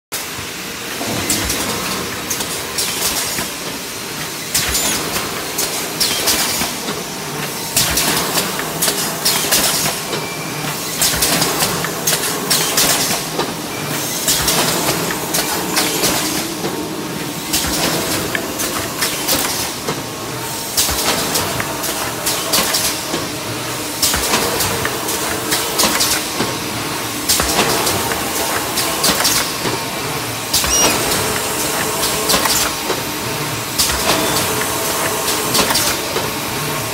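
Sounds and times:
short sharp noise bursts: 0:30.6 - 0:31.4.

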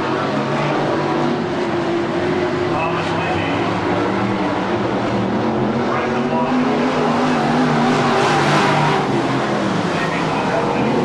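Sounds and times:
race car engines running: 0:00.0 - 0:11.0.

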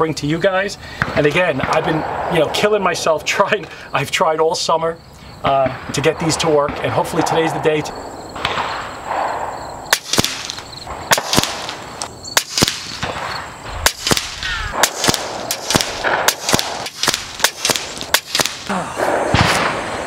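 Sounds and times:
air rifle shots cracking: 0:08.4 - 0:20.0.

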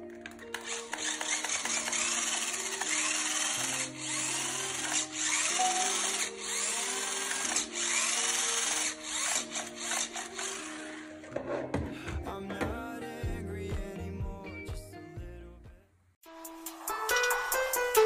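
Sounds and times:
electric motor and gearbox whining: 0:00.0 - 0:11.7.

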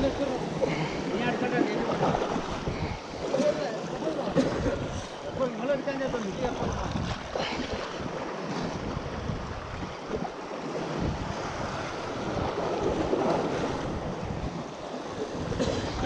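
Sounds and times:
surf washing against rocks: 0:00.0 - 0:16.0
wind buffeting microphone: 0:00.0 - 0:16.0.

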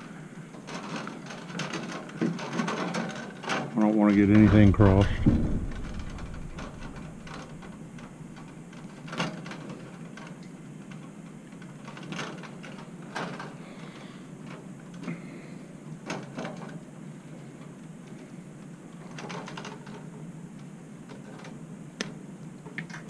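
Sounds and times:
low background hum: 0:00.0 - 0:23.0
wire strippers clicking: 0:00.8 - 0:10.4.

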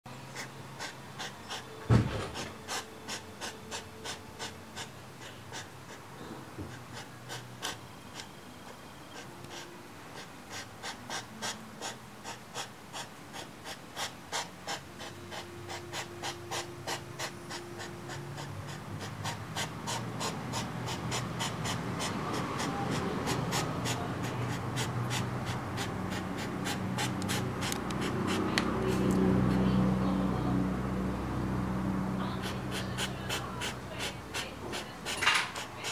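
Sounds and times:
hedgehogs huffing: 0:00.3 - 0:29.5, 0:32.2 - 0:35.9.

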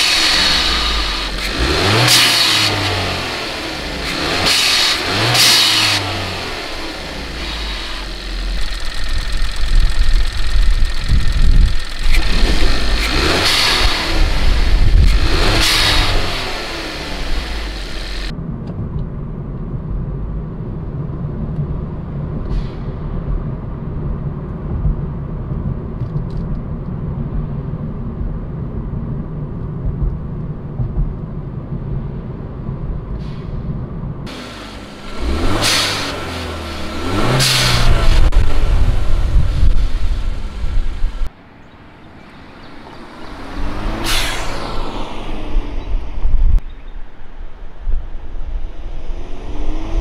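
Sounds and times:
car engine revving: 0:00.0 - 0:18.3, 0:34.2 - 0:41.3, 0:42.6 - 0:46.6, 0:48.6 - 0:50.0
engine and road rumble in cabin: 0:00.0 - 0:50.0.

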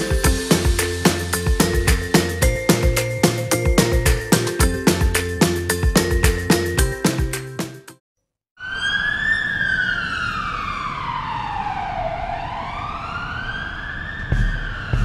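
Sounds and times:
siren-like sweeping tone: 0:08.6 - 0:15.0.

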